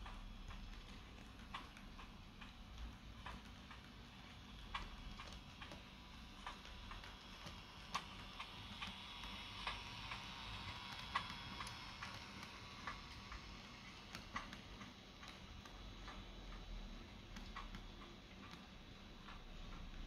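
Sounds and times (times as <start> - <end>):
model train wheels clicking: 0.0 - 20.0.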